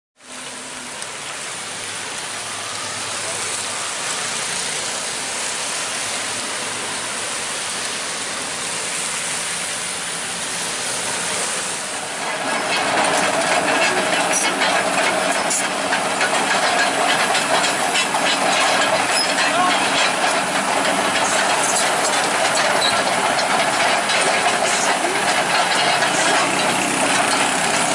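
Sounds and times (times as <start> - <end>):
excavator engine running: 0.3 - 27.9
sharp clicks and clanks: 12.2 - 27.9.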